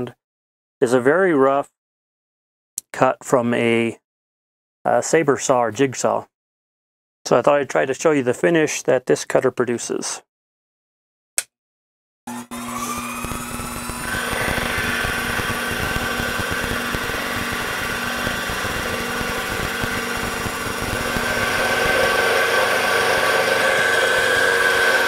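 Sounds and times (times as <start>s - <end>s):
end mill machining aluminium: 12.5s - 25.0s.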